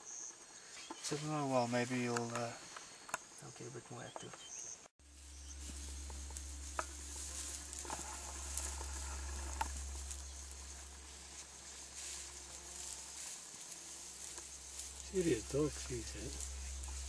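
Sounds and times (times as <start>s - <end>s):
night insects chirring: 0.0s - 17.0s
low steady rumble: 5.0s - 17.0s
faint clicks and rustles: 5.1s - 17.0s.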